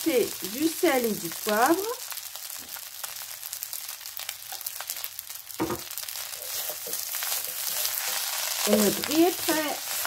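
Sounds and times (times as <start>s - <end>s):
rice sizzling in a wok: 0.0s - 10.0s
wooden spatulas scraping pan: 6.3s - 10.0s.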